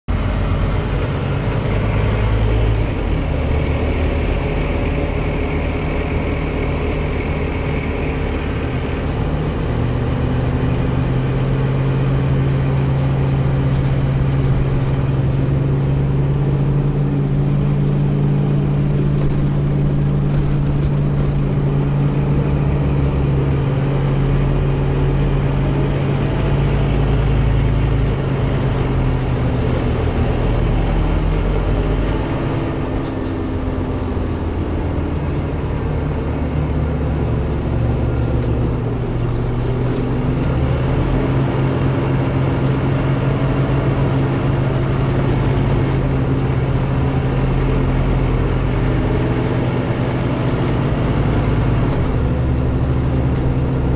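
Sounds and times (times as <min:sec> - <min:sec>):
bus engine running: 0:00.0 - 0:53.9
high engine whine: 0:00.1 - 0:53.9.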